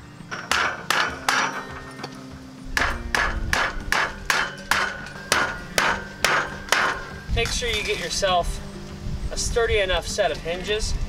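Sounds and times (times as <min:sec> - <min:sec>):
hammer striking wood: 0:00.3 - 0:07.2.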